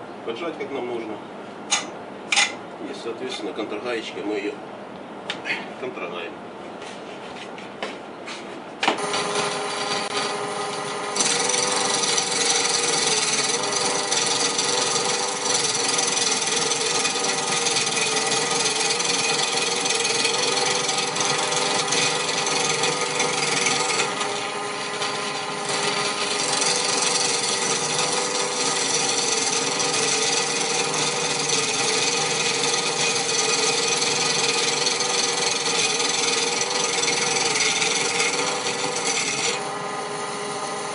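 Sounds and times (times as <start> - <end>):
turning tool scraping wood: 6.7 - 40.9
lathe motor humming: 8.8 - 40.9.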